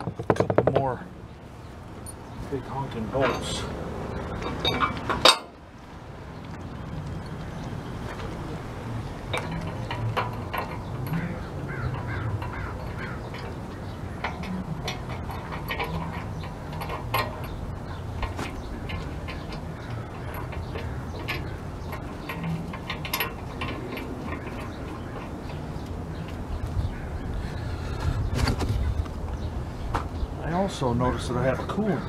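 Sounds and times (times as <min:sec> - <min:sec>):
birds calling: 0:00.0 - 0:32.0
steady low rumble: 0:01.0 - 0:31.4
metal clinks and knocks: 0:03.1 - 0:05.6, 0:08.9 - 0:27.0.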